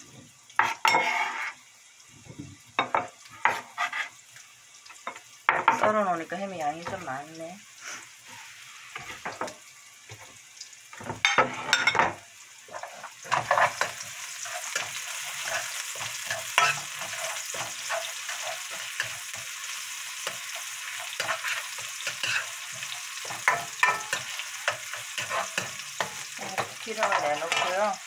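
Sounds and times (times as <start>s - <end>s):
onions sizzling in hot oil: 0.0s - 28.0s
spoon scraping and tapping pan: 0.6s - 1.6s, 2.8s - 4.1s, 4.9s - 6.0s, 9.0s - 10.3s, 11.0s - 19.6s, 20.2s - 27.9s.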